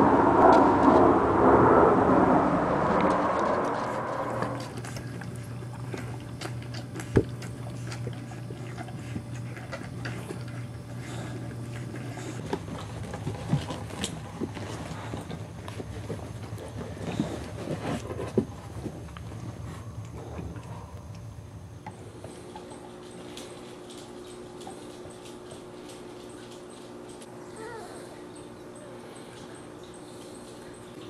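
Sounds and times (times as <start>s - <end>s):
steady low hum: 0.0s - 31.0s
dogs playing clicks and scuffles: 3.8s - 21.2s, 21.8s - 27.5s, 28.3s - 31.0s.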